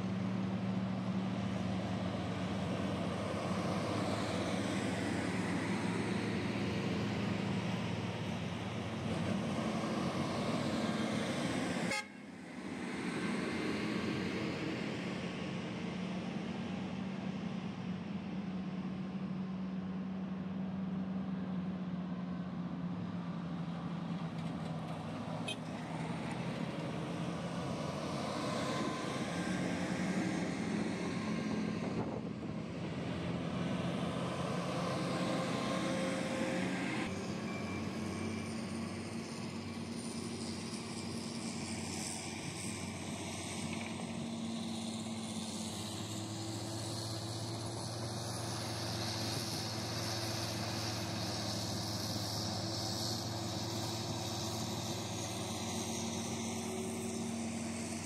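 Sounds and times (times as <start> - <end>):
diesel truck engine drone: 0.0 - 58.0.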